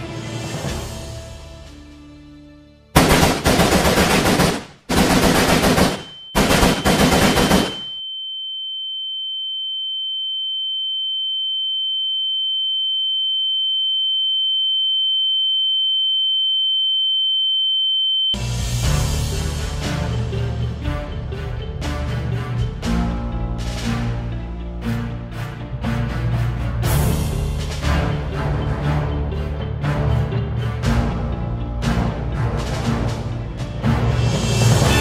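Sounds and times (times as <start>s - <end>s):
automatic gunfire: 3.0s - 7.9s
high-pitched ringing tone: 7.8s - 18.4s.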